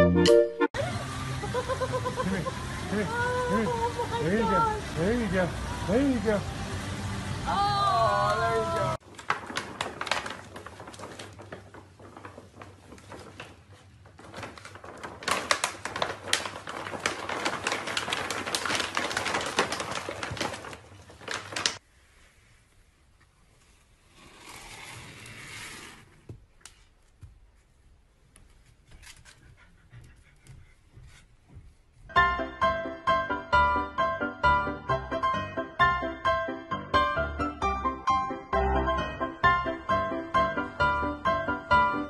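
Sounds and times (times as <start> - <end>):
paper bag crinkling and rustling: 9.0 - 21.9.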